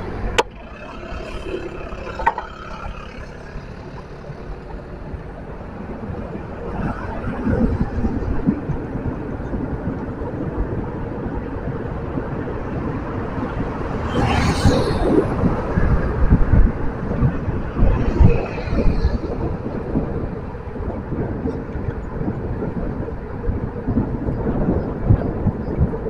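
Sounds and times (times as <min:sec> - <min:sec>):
vehicle passing: 0:00.0 - 0:10.2, 0:11.9 - 0:20.9
street traffic: 0:00.0 - 0:26.0
wind buffeting microphone: 0:00.0 - 0:26.0.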